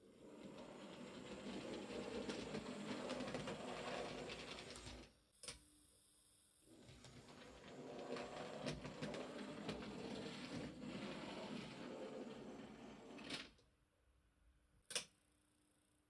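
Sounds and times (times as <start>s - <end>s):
wheels rattling over track: 0.2s - 5.0s, 7.2s - 13.3s.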